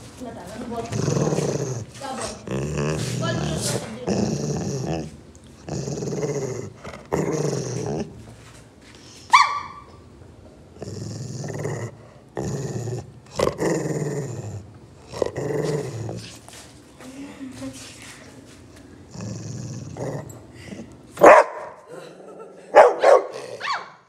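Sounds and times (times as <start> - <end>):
dog growling: 0.6 - 8.4, 10.7 - 16.5, 19.0 - 21.0, 21.9 - 23.7
dog yelping: 9.3 - 10.0, 22.8 - 24.0.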